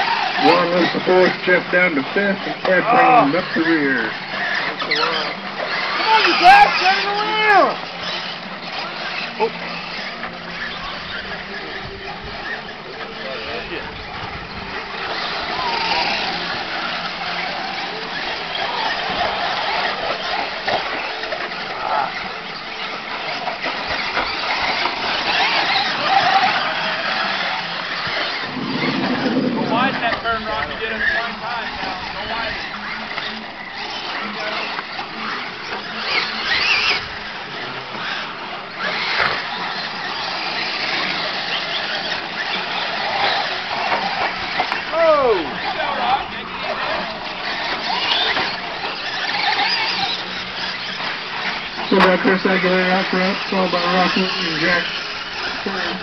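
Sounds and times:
rc truck motors whining: 0.0s - 56.0s
steady outdoor hiss: 0.0s - 56.0s.

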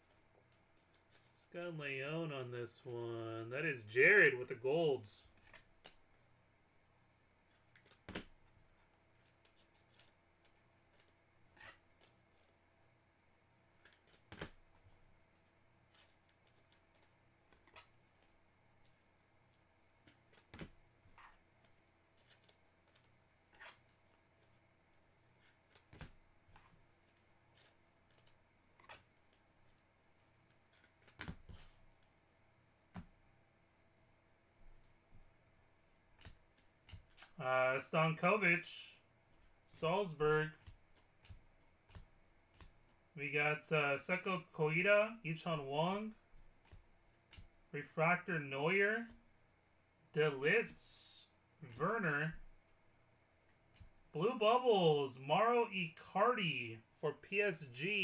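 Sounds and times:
trading cards clicking and tapping: 40.5s - 43.0s.

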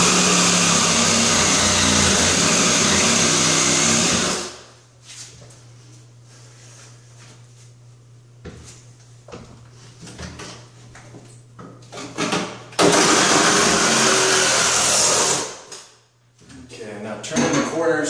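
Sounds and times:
reciprocating saw cutting: 0.0s - 4.6s, 12.8s - 15.6s.

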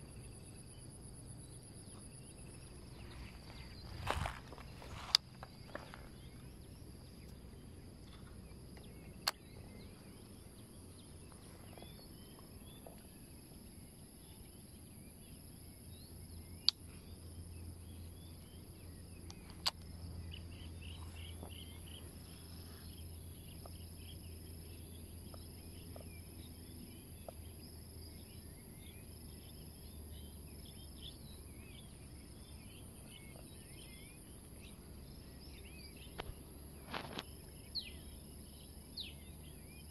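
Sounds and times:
insects droning: 0.0s - 39.9s
small birds chirping: 0.0s - 39.9s.

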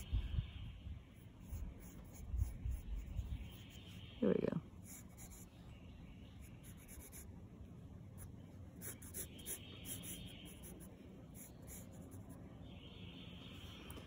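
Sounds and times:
pencil sketching on paper: 1.4s - 4.0s, 4.8s - 5.5s, 6.5s - 7.3s, 8.8s - 12.3s.

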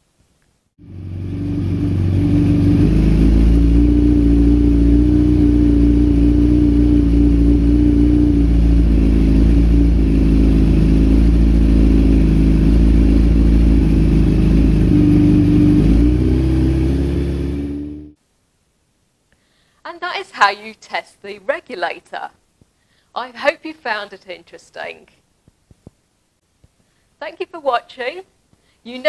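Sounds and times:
motorcycle engine idling: 0.8s - 18.2s.

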